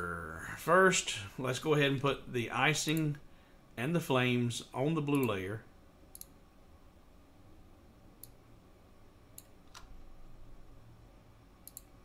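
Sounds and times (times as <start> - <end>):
faint computer mouse clicks: 11.6 - 11.9.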